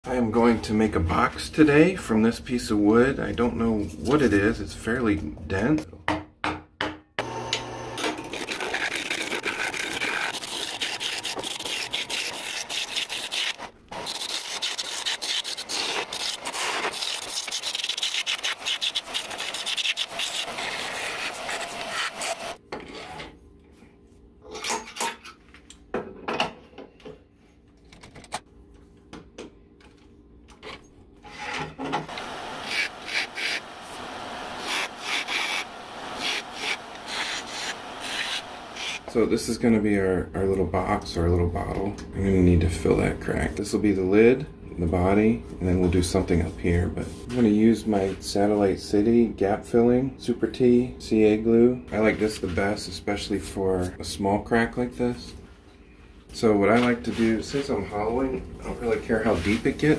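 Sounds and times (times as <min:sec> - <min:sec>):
lathe tool scraping wood: 0:07.2 - 0:23.2, 0:31.2 - 0:39.2
lathe motor hum: 0:32.1 - 0:39.2.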